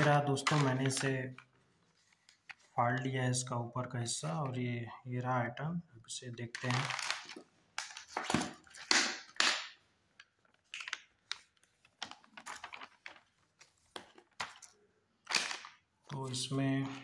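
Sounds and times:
plastic packets clattering on table: 0.0s - 1.4s, 6.6s - 15.9s
plastic rustling: 0.0s - 2.8s, 6.6s - 8.9s, 10.2s - 17.0s.

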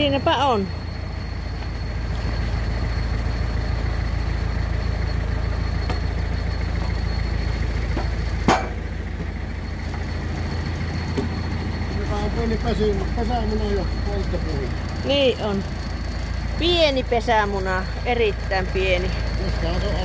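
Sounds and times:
tractor engine idling: 0.0s - 20.0s
log dropped onto trailer: 7.9s - 9.3s
logs knocking: 7.9s - 10.1s.

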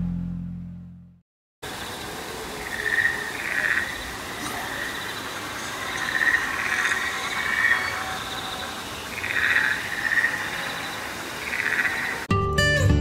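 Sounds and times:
high insect drone: 1.6s - 12.3s
buzzy trilling frog calls: 1.7s - 12.3s.

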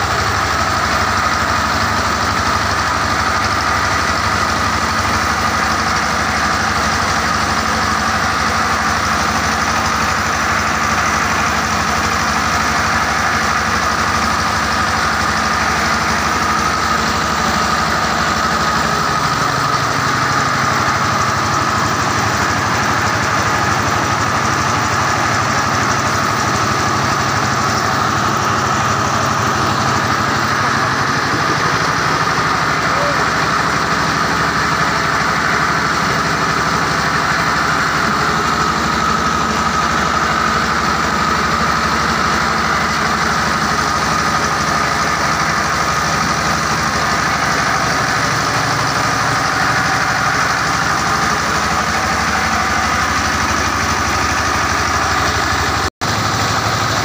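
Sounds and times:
engine drone: 0.0s - 57.0s
milling machine high whine: 10.2s - 40.5s.

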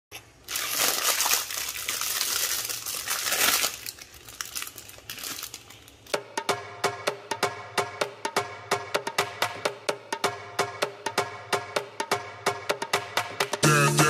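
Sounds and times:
foil wrapper crinkling: 0.1s - 6.2s
music beat with wood-block percussion: 6.1s - 14.0s.

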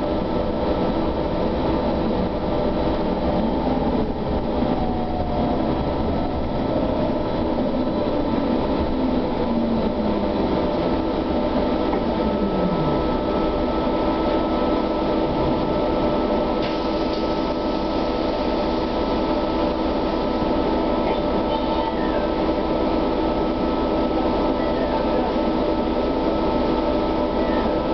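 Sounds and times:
trolleybus interior rumble: 0.0s - 27.9s
falling whine: 1.9s - 19.7s.

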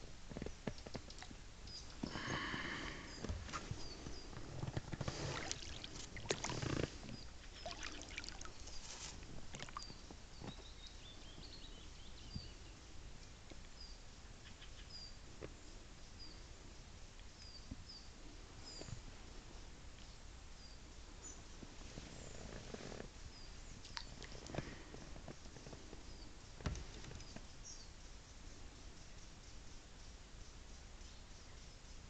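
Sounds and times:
small bird chirping: 3.0s - 4.8s, 5.6s - 12.9s
water lapping: 5.0s - 9.8s.

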